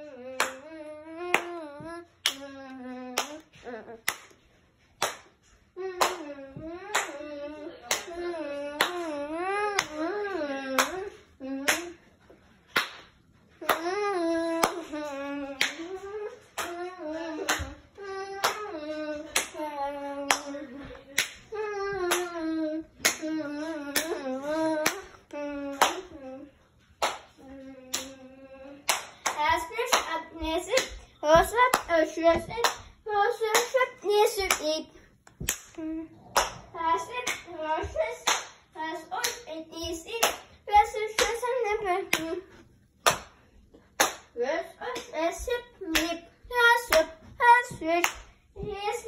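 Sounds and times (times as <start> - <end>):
hand claps: 0.4 - 1.6, 3.1 - 7.3, 12.7 - 13.9, 14.6 - 17.8, 18.4 - 19.6, 20.2 - 22.4, 23.0 - 26.2, 27.0 - 28.2, 28.8 - 32.9, 33.5 - 39.5, 40.2 - 40.5, 41.1 - 42.4, 43.0 - 43.4, 44.0 - 46.2, 46.8 - 48.4.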